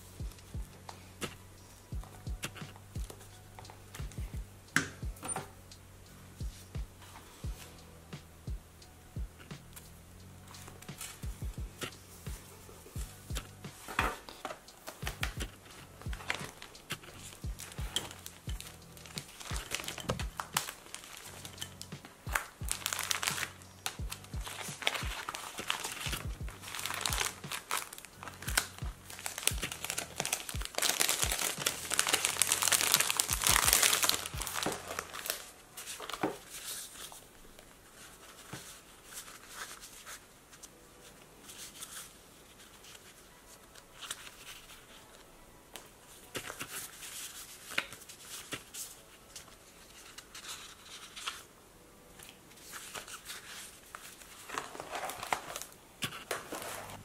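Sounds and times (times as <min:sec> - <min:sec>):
stiff paper prints rustling: 0:10.5 - 0:51.6, 0:52.2 - 0:57.0
plastic sleeves crinkling: 0:11.8 - 0:57.0.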